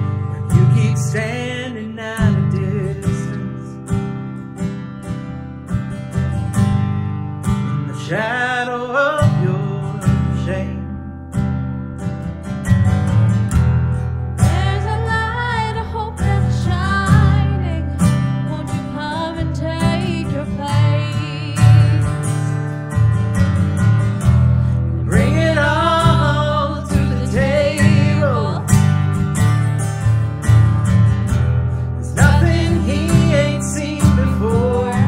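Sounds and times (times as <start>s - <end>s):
acoustic guitar strumming: 0.0s - 35.0s
woman singing: 14.4s - 22.6s, 25.1s - 28.8s, 32.1s - 35.0s.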